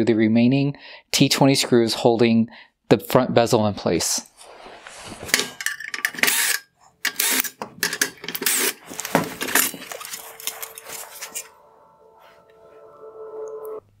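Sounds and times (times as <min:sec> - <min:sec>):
cordless drill bursts: 0:06.3 - 0:07.6, 0:08.4 - 0:08.8.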